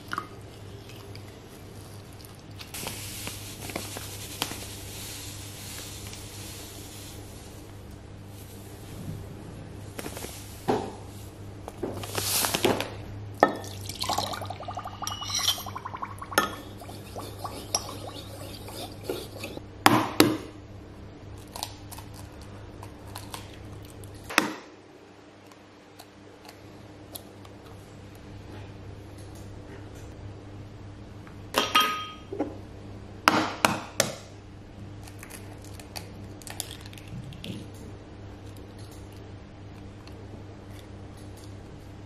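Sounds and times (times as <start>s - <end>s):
liquid pouring into jug: 13.6s - 18.7s
sugar pouring into glass jug: 13.6s - 19.6s
glass clinks: 14.9s - 15.7s.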